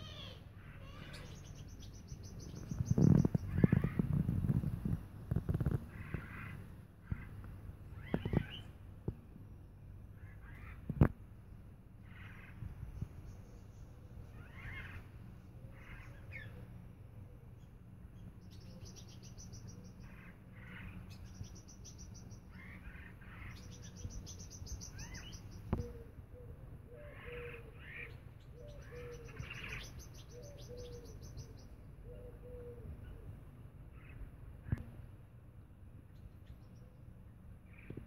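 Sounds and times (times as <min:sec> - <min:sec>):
bird chirps and calls: 0:00.0 - 0:07.3, 0:07.9 - 0:08.8, 0:12.1 - 0:15.0, 0:17.6 - 0:26.1, 0:26.9 - 0:33.2
low steady hum: 0:00.0 - 0:38.0.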